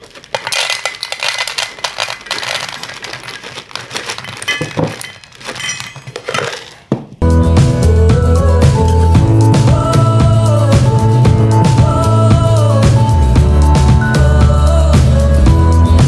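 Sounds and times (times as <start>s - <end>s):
dry kibble clinking in metal bowl: 0.0s - 6.8s.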